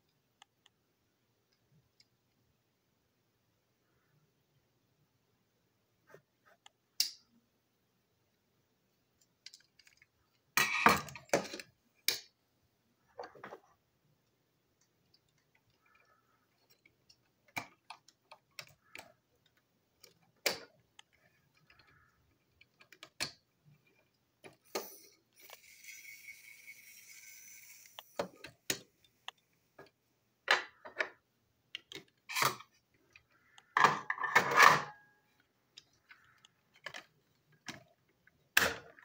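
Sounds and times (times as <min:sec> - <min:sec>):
plastic toy clicking and clattering: 0:09.2 - 0:12.3, 0:14.8 - 0:30.0, 0:30.6 - 0:39.0.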